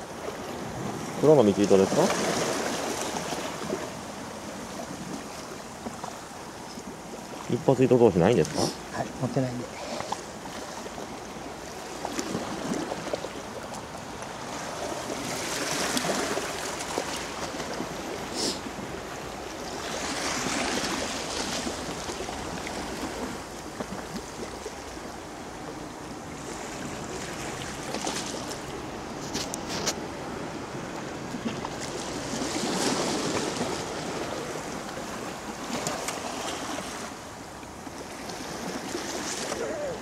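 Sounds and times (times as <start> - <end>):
waves washing against rocky shore: 0.0 - 29.3.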